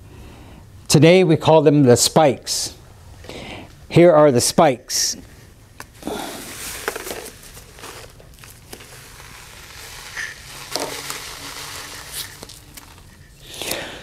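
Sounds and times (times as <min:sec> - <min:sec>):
feathers rustling: 0:06.4 - 0:13.4.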